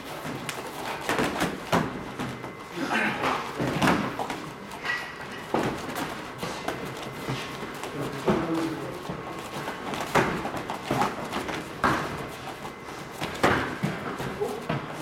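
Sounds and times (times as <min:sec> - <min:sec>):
feet shuffling on foam mats: 0:00.0 - 0:15.0.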